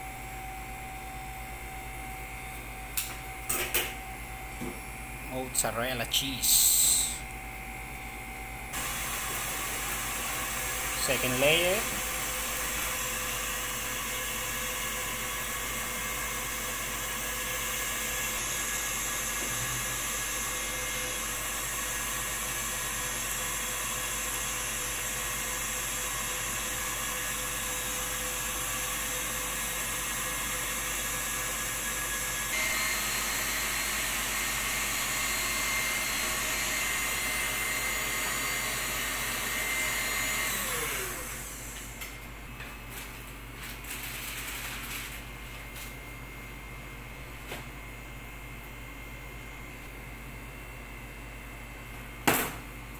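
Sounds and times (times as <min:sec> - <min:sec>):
motor whirring and whining: 0:08.7 - 0:42.1.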